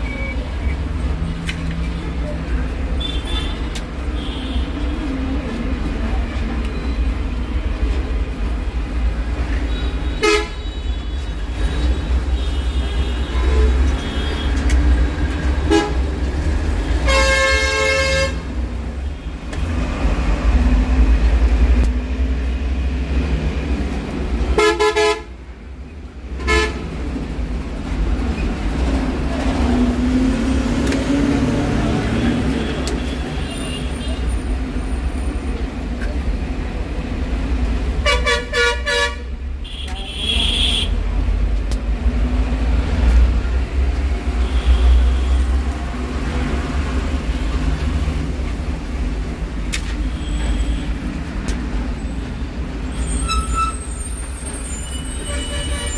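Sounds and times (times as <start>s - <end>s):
street traffic rumbling: 0.0s - 55.9s
vehicle horn honking: 10.2s - 10.7s, 24.6s - 25.3s.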